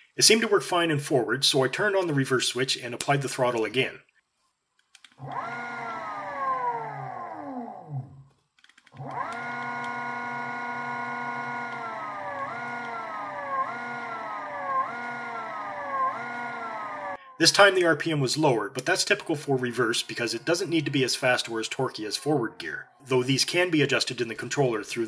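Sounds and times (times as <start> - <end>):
electric motor whining: 5.2 - 8.2, 9.0 - 17.2.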